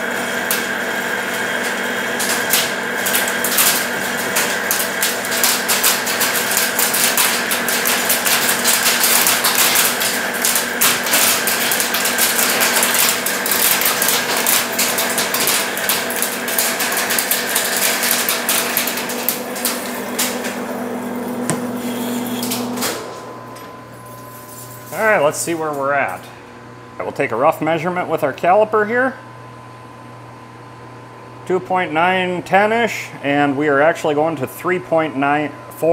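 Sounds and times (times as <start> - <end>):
lathe drive hum: 0.0 - 34.3
lathe cutting crackle: 15.0 - 25.0.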